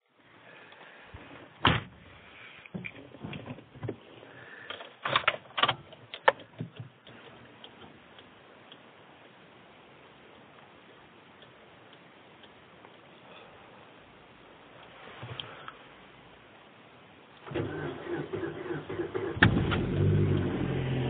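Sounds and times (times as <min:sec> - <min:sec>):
low steady hiss: 0:00.0 - 0:21.0.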